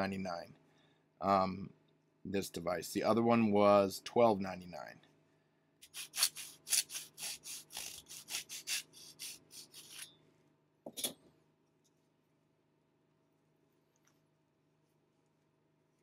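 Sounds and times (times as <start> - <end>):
hand saw cutting plastic: 5.8 - 10.1.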